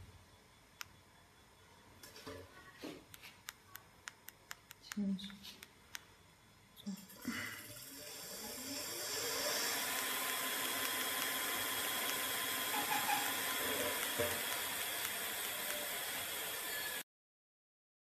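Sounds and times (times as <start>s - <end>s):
electric motor whine: 7.6s - 17.0s.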